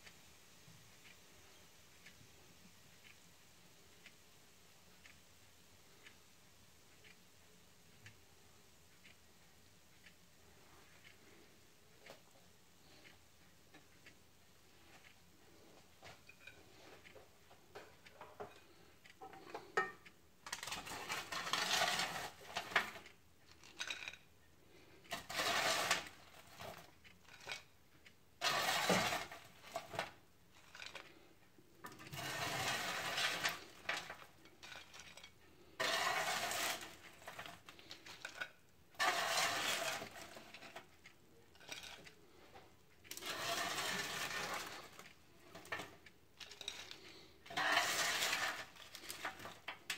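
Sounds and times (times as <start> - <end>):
spatula scraping a baking tray: 20.5 - 23.0, 25.1 - 27.6, 28.4 - 30.1, 31.9 - 40.8, 43.1 - 49.9.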